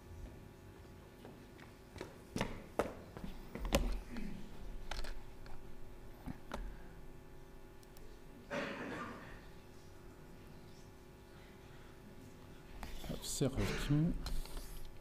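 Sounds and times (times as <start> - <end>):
footsteps on wooden stage: 1.2 - 4.1.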